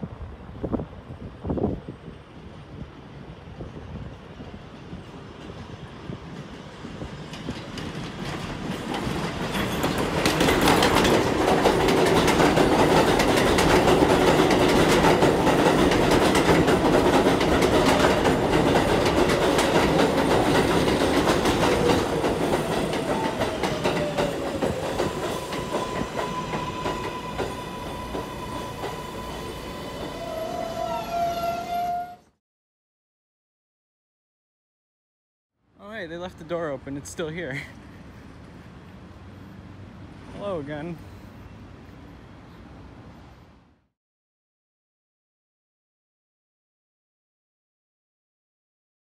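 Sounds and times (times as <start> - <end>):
train wheels clattering over rail joints: 6.3 - 29.0.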